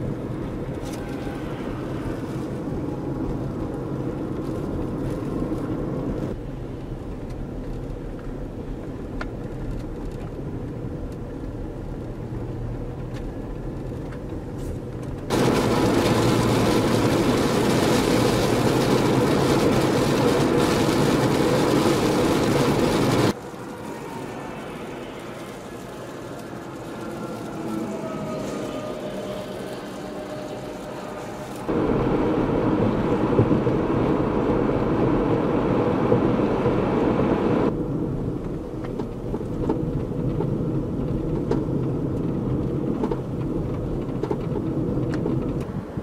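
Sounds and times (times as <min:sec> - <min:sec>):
blizzard wind: 0:00.0 - 0:12.1, 0:13.1 - 0:46.0
vehicle engines humming: 0:10.5 - 0:46.0.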